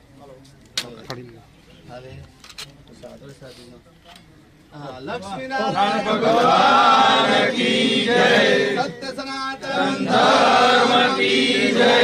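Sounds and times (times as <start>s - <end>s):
men chanting together: 5.5s - 12.0s.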